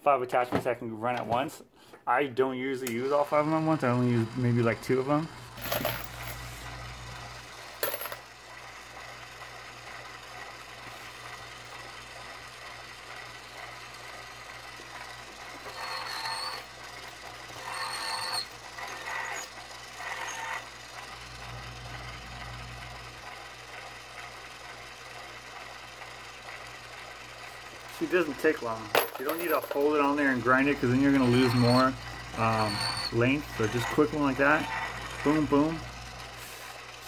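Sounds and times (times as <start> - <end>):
small electric motor humming: 3.3 - 37.0
brass cases scraping on tool: 15.6 - 16.7, 17.6 - 19.5, 29.0 - 35.5.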